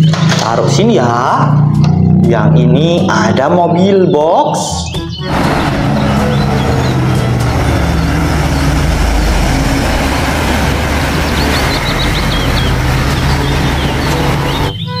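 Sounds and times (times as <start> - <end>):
road noise: 0.0 - 15.0
bird chirps: 3.7 - 9.3, 11.1 - 15.0
diesel truck driving past: 4.9 - 15.0.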